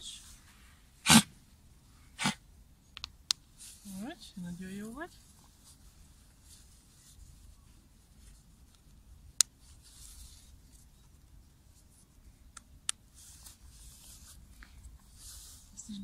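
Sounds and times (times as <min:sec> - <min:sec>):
sharp clicks: 0:03.0 - 0:03.4
fabric rustling: 0:03.6 - 0:09.0, 0:09.6 - 0:12.1, 0:13.1 - 0:16.0.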